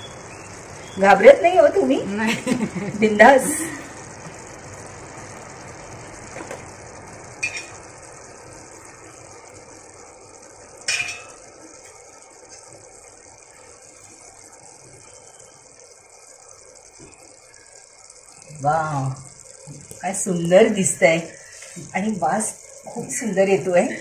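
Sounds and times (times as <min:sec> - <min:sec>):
rice bubbling and hissing: 0:00.0 - 0:24.0
clicks and knocks in pot: 0:07.4 - 0:07.8, 0:10.8 - 0:12.7.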